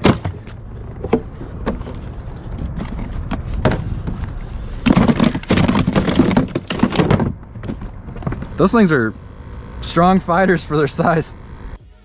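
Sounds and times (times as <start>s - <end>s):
knocks and thuds: 0.0s - 2.0s, 2.7s - 8.8s
fish thrashing in plastic cooler: 4.8s - 8.5s.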